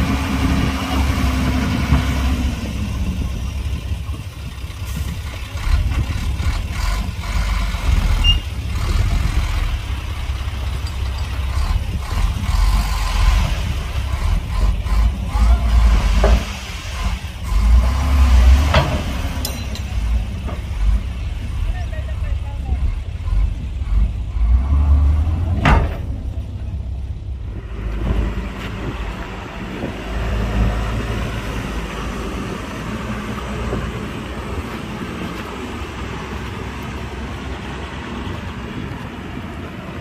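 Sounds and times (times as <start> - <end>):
diesel engines rumbling: 0.0 - 40.0
engine revving: 11.5 - 19.4, 23.3 - 26.0.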